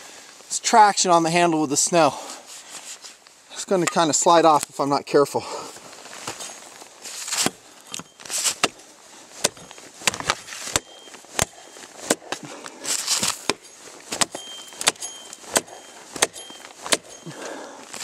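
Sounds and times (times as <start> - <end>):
tomahawk chopping wood: 7.3 - 8.8, 9.4 - 17.4.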